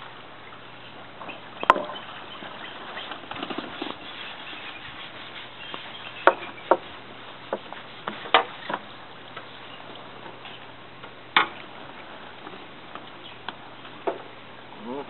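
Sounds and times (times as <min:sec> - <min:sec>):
eagles chirping: 0:00.0 - 0:10.8
sharp knocks: 0:06.2 - 0:06.9.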